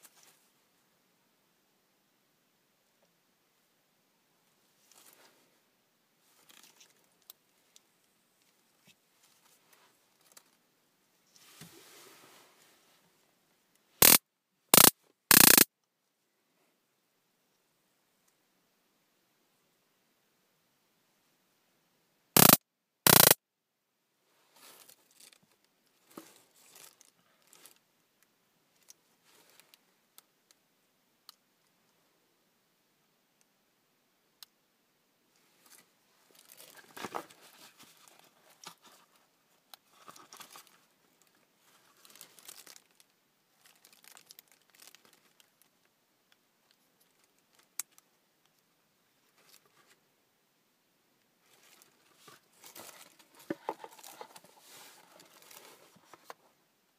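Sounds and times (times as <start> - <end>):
small device clicks: 14.8 - 15.6, 22.4 - 23.4
stun gun crackling: 14.8 - 15.6, 22.4 - 23.4
soft rustling against denim: 51.4 - 56.4.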